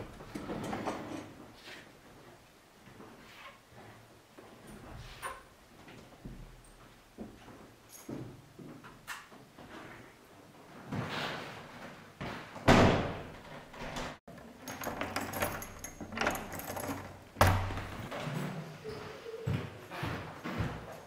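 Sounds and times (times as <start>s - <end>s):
door banging shut: 12.6s - 14.2s, 14.9s - 18.1s.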